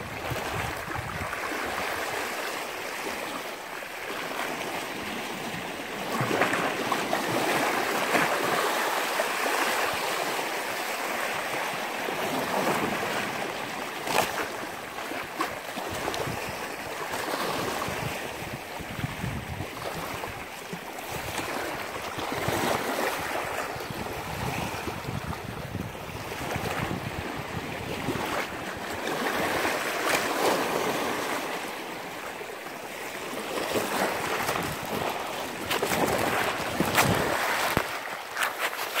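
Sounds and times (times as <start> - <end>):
wind on microphone: 0.0 - 2.4, 15.8 - 31.6, 33.6 - 38.1
sea waves washing in: 0.0 - 39.0.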